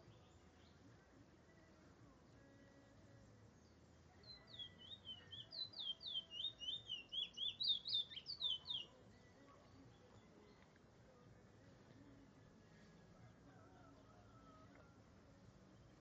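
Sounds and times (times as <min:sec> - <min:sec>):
bird singing high notes: 0:04.3 - 0:08.9.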